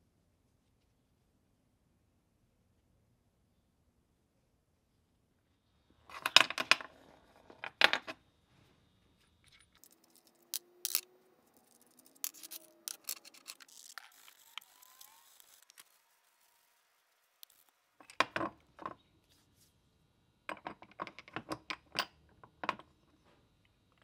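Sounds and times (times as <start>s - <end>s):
faint squeaks: 8.6s - 17.9s
metal scraping: 9.8s - 17.7s.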